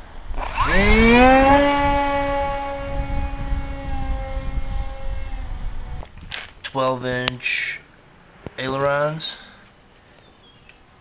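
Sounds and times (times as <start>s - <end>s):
wind rumble on microphone: 0.0s - 6.4s
electric motor whine: 0.3s - 6.1s.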